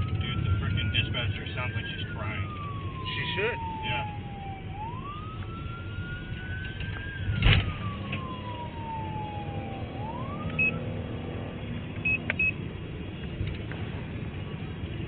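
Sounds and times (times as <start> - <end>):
siren wailing: 0.0 - 11.6
car engine and road rumble: 0.0 - 15.0.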